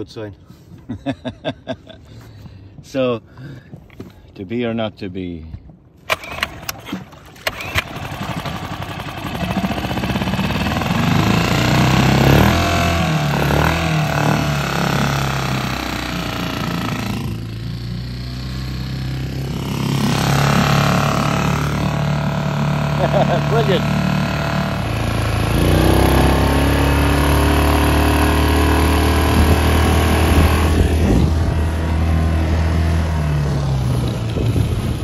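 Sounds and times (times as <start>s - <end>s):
outboard motor starter clicks: 6.0s - 11.0s
outboard motor running: 6.0s - 35.0s.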